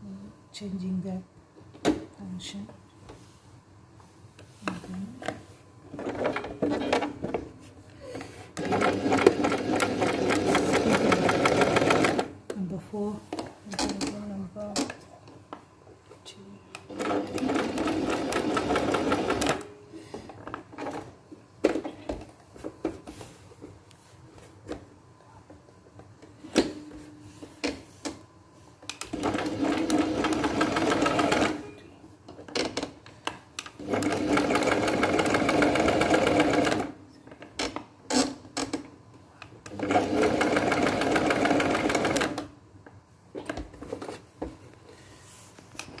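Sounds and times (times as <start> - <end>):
sewing machine stitching: 8.6 - 12.3, 16.9 - 19.7, 29.1 - 31.7, 33.8 - 37.0, 39.7 - 42.5.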